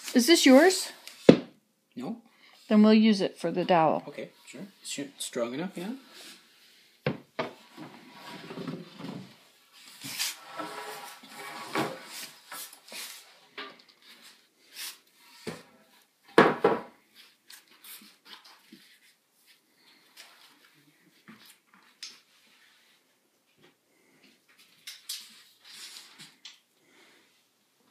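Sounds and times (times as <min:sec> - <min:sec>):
wooden boards knocking and clattering: 0:16.3 - 0:16.9.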